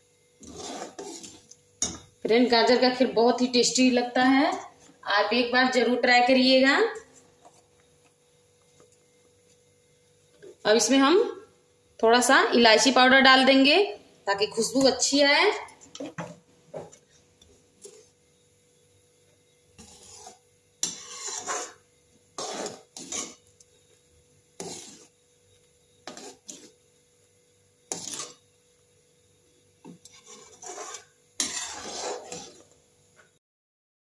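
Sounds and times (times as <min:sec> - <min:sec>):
spatula scraping metal pan: 0:00.4 - 0:02.0, 0:19.8 - 0:21.8, 0:22.4 - 0:23.5, 0:24.6 - 0:25.1, 0:26.0 - 0:26.8, 0:27.9 - 0:28.4, 0:29.8 - 0:32.8.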